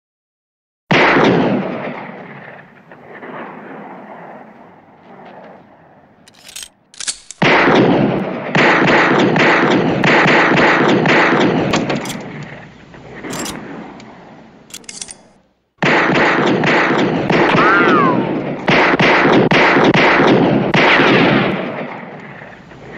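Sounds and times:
rapid pistol gunshots echoing: 0.9 - 5.0, 6.3 - 13.9, 15.8 - 22.9.

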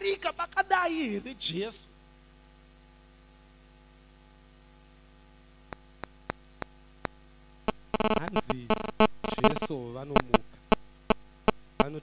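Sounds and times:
electrical mains hum: 0.0 - 12.0
sharp clicks: 5.7 - 12.0.

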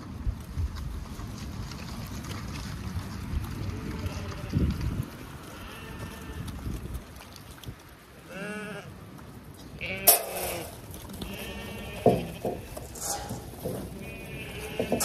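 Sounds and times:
sheep bleating: 5.5 - 6.5, 8.2 - 8.9, 9.8 - 13.1, 13.9 - 15.0.

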